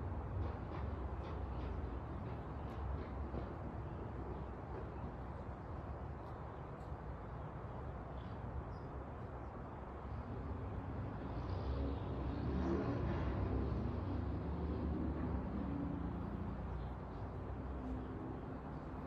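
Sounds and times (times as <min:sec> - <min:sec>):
vehicle engine rumble passing: 0:11.1 - 0:19.0.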